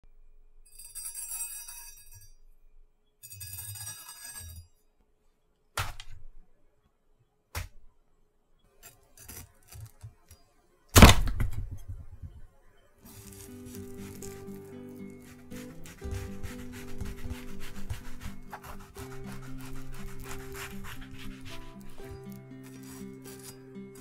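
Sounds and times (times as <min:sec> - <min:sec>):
knife crunching through watermelon: 0:13.1 - 0:24.0.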